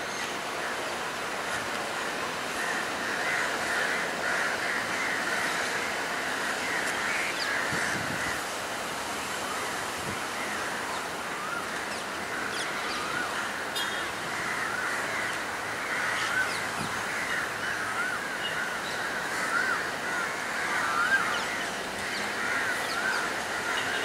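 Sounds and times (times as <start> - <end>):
steady background noise: 0.0 - 24.0
crows cawing: 2.4 - 8.5, 11.4 - 24.0.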